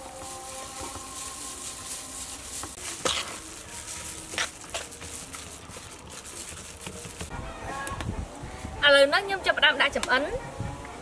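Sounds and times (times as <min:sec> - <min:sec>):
rice rustling and squishing: 0:00.0 - 0:07.3.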